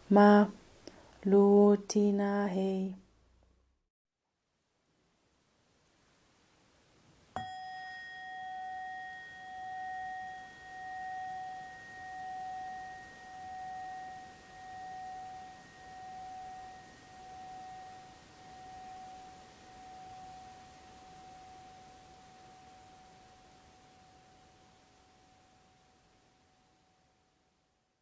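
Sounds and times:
bell-like metal instrument ringing: 0:07.4 - 0:25.8.

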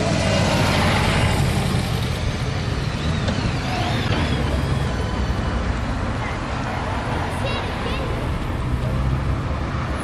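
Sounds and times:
motorcycles passing close by: 0:00.0 - 0:06.5.

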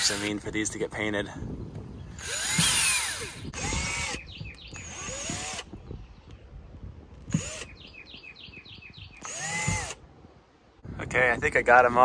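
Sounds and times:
cordless drill spinning: 0:00.0 - 0:00.4, 0:02.2 - 0:05.8, 0:07.3 - 0:07.8, 0:09.2 - 0:10.0.

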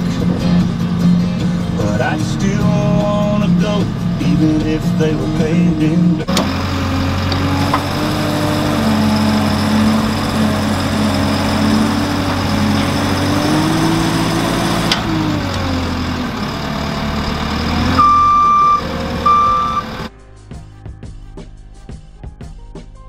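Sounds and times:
diesel engine under load: 0:00.0 - 0:20.1
hydraulic auger boring: 0:06.2 - 0:20.1
reversing alarm beeps: 0:17.9 - 0:19.9.

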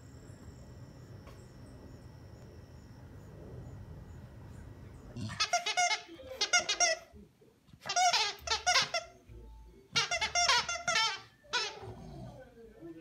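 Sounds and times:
squeaky toy squeaking: 0:05.2 - 0:07.1, 0:07.8 - 0:09.2, 0:09.9 - 0:11.9.

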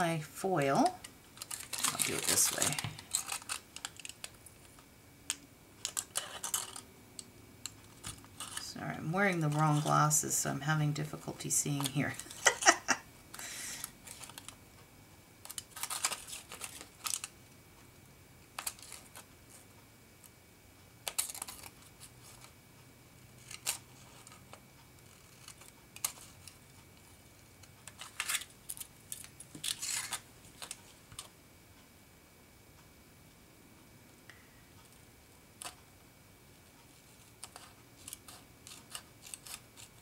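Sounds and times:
scissors cutting foil: 0:00.7 - 0:04.4, 0:05.8 - 0:07.3, 0:08.0 - 0:10.0, 0:15.4 - 0:17.3, 0:21.1 - 0:21.8, 0:23.4 - 0:24.4, 0:25.0 - 0:26.6, 0:27.9 - 0:30.8, 0:37.4 - 0:40.0
foil crinkling: 0:01.4 - 0:04.4, 0:11.8 - 0:14.6, 0:15.5 - 0:17.3, 0:27.9 - 0:31.2.

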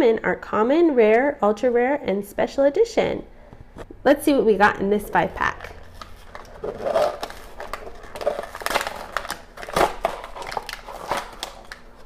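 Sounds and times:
plastic packaging crackling: 0:05.4 - 0:12.0.

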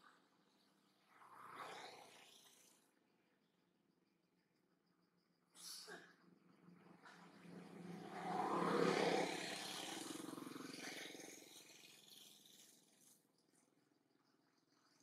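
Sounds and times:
motor vehicle passing by: 0:06.7 - 0:13.2.

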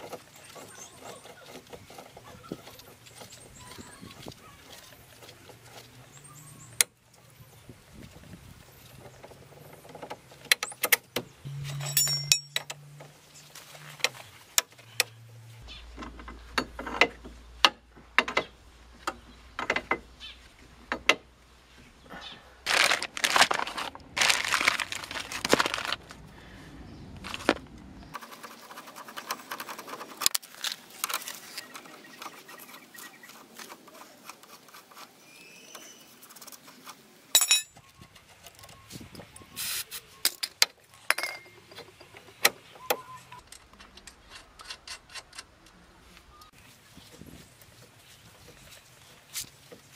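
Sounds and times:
metal clinks and knocks: 0:09.7 - 0:13.1, 0:37.3 - 0:38.5, 0:40.3 - 0:42.4
plastic bag crinkling: 0:22.7 - 0:26.2.

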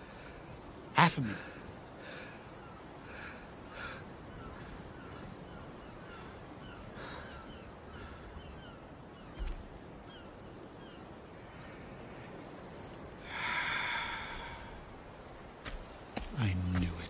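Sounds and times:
high falling bird calls: 0:00.0 - 0:17.0
steady hiss: 0:00.0 - 0:17.0
soft breath: 0:13.2 - 0:15.1.

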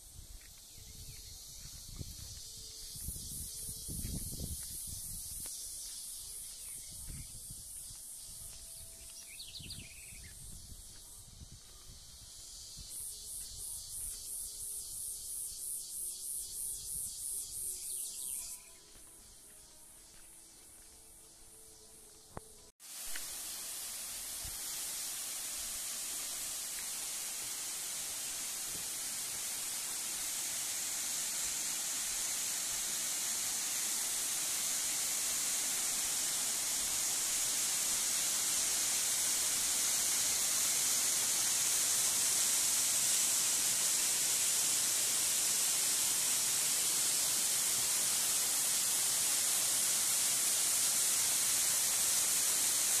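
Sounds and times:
waterfall rushing: 0:22.9 - 0:53.0.

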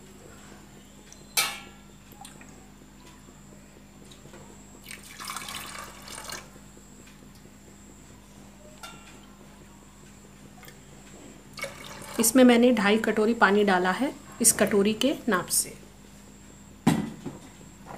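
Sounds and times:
water pouring into a pot: 0:04.8 - 0:06.5, 0:11.6 - 0:12.3.

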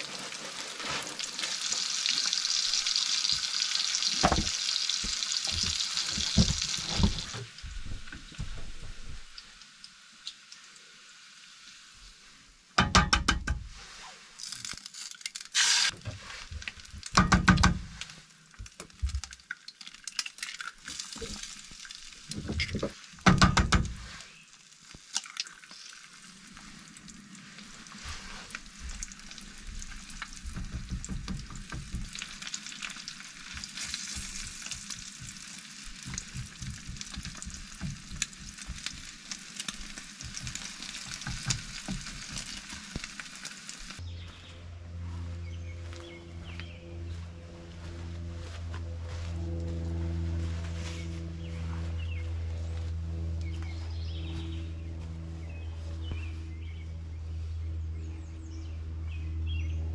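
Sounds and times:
eggs sizzling in a pan: 0:00.0 - 0:07.4, 0:09.1 - 0:12.6, 0:14.4 - 0:23.6, 0:24.2 - 0:44.0.

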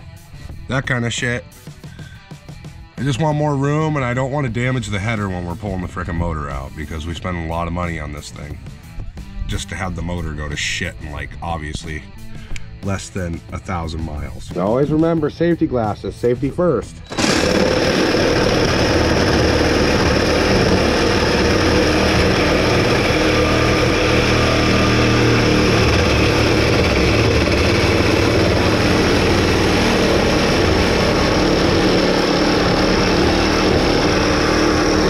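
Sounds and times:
reciprocating saw cutting metal pipe: 0:17.0 - 0:35.0.

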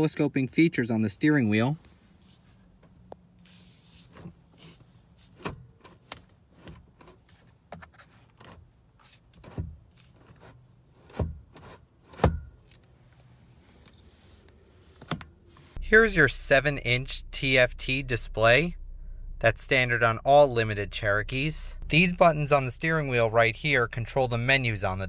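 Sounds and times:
steering wheel lever clicks and clunks: 0:04.1 - 0:14.0, 0:14.9 - 0:15.6
low steady hum: 0:12.3 - 0:25.0.

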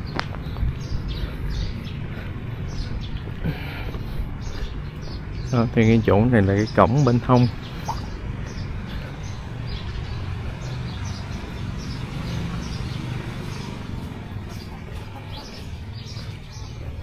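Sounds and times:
steady low rumble: 0:00.0 - 0:05.4
small birds chirping: 0:00.0 - 0:17.0.

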